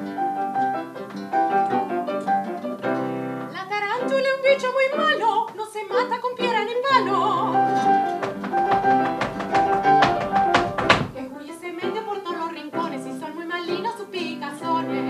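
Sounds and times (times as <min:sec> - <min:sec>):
grand piano: 0:00.0 - 0:15.0
woman singing with vibrato: 0:03.5 - 0:15.0.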